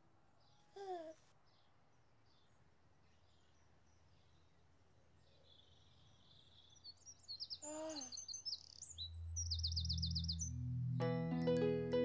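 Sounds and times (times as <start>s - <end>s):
bird chirping and trilling: 6.1s - 10.7s
low held music notes: 9.1s - 12.0s.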